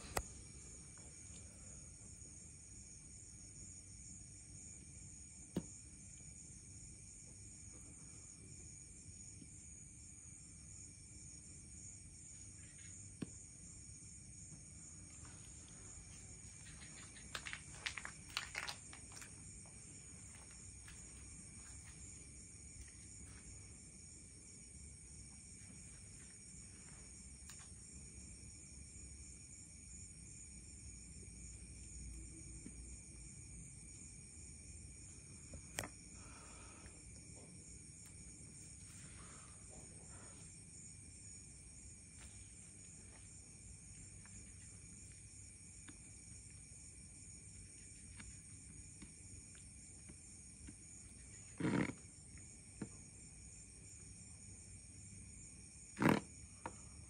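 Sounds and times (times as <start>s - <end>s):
crickets chirring: 0.0s - 57.0s.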